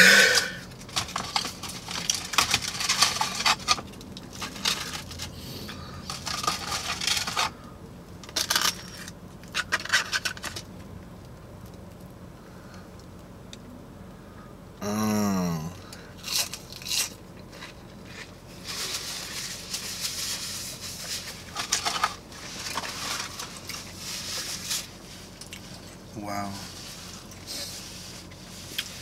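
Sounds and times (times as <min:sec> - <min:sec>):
crunching while eating: 0:00.0 - 0:10.8, 0:15.2 - 0:29.0
paper packaging rustling: 0:06.0 - 0:07.6, 0:17.6 - 0:25.4.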